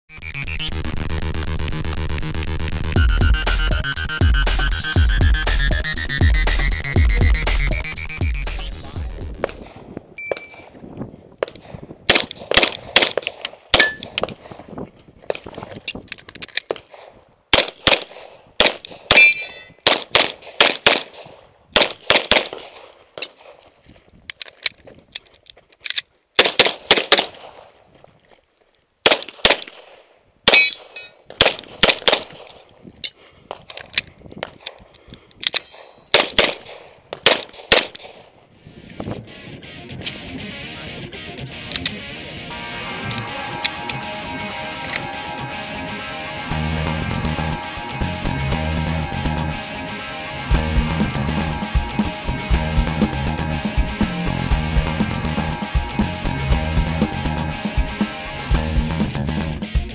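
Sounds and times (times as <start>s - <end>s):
pistol shots: 11.4s - 14.6s, 16.7s - 23.6s, 26.4s - 27.7s, 29.0s - 32.6s, 35.6s - 38.3s
steel targets ringing: 19.1s - 19.8s, 42.5s - 46.7s.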